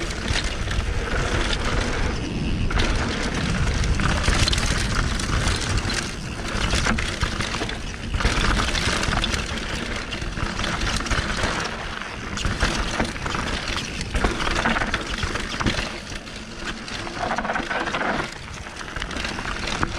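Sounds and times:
wind on microphone: 0.0s - 9.5s
bike rattling clicks: 0.0s - 19.9s
bike tyres rolling over dirt: 0.0s - 19.9s.

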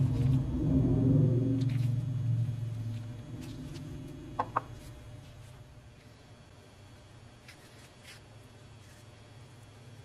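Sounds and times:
low hum: 0.0s - 7.8s.

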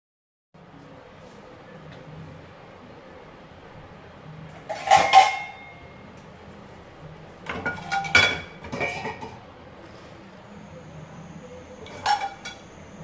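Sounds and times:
pots and dishes clattering: 4.5s - 6.0s, 7.4s - 9.5s, 11.8s - 12.7s.

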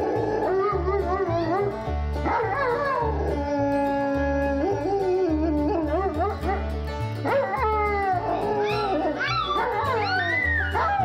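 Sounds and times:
dog howling: 0.0s - 6.7s, 7.3s - 11.0s
background music with low beat: 0.0s - 8.4s.

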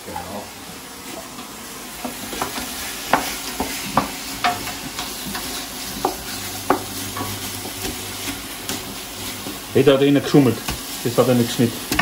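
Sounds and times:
chicken and onions sizzling in oil: 0.0s - 12.0s
wooden spoon knocking on pot: 5.3s - 8.0s.

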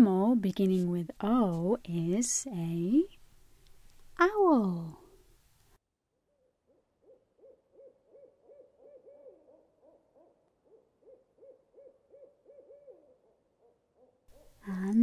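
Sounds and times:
owl hooting faintly: 6.7s - 14.9s.

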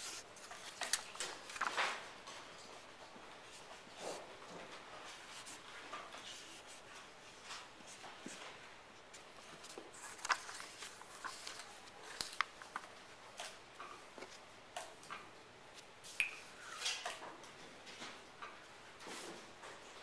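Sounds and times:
paper rustling: 0.0s - 4.1s, 5.0s - 8.5s, 9.1s - 13.6s.

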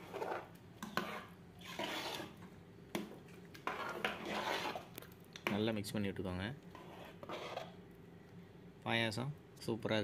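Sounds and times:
spoon stirring in metal pot: 0.0s - 5.7s, 6.6s - 7.8s.

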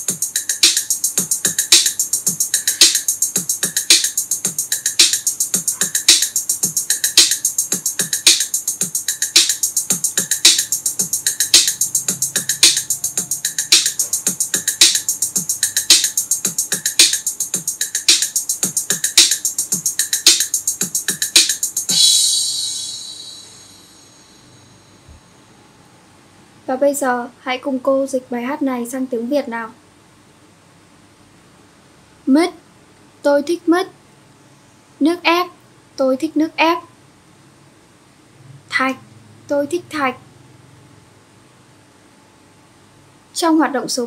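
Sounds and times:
instrumental music with steady beat: 0.0s - 25.2s
final ringing hit: 21.9s - 25.1s.

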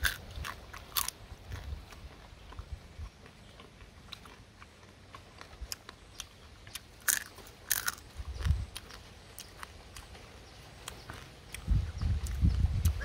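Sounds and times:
crab shell crunching in chewing: 0.0s - 10.2s.

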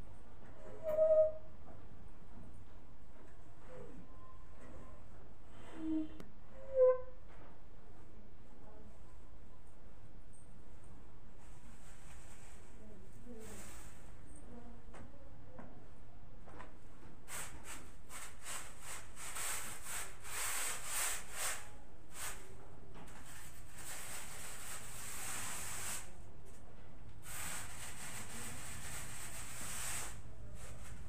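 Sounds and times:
hand rubbing a wall: 17.3s - 26.6s, 27.2s - 31.0s.

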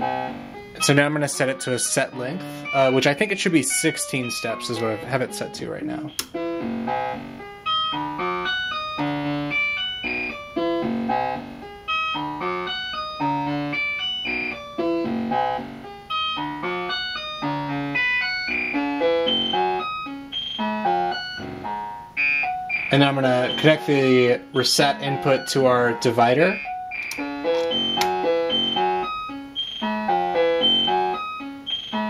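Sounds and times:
synthesizer sequence of short notes: 17.4s - 32.0s.

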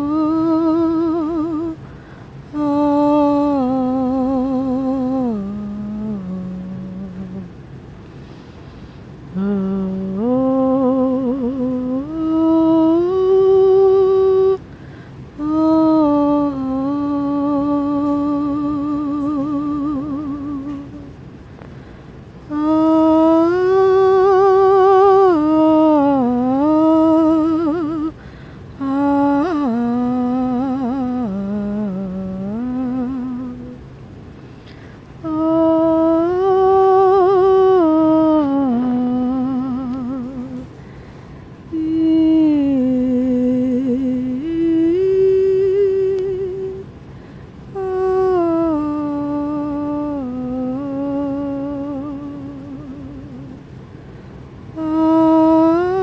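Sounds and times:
person humming a melody: 0.0s - 1.8s, 2.5s - 7.6s, 9.3s - 14.7s, 15.4s - 21.2s, 22.4s - 33.9s, 34.6s - 40.7s, 41.7s - 47.0s, 47.7s - 53.7s, 54.7s - 56.0s.

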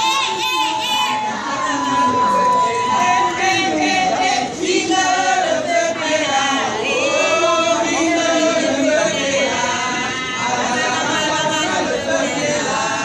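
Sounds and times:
group chanting: 0.0s - 13.0s.

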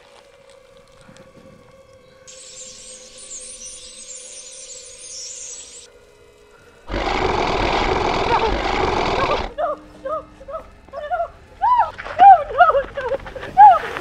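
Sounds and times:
low steady drone: 0.0s - 13.7s.

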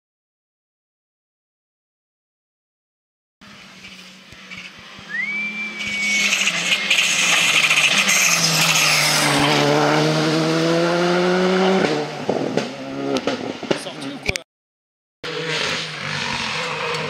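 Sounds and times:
tyre noise on tarmac: 3.4s - 9.7s
rally car passing at speed: 3.4s - 14.2s, 15.3s - 17.0s.

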